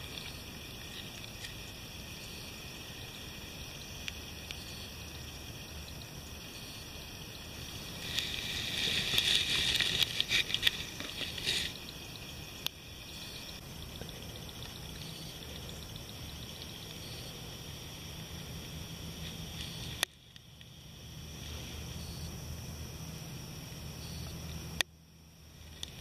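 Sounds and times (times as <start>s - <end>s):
water sloshing and trickling: 0.0s - 3.0s, 7.3s - 17.0s
faint hiss: 0.0s - 20.1s.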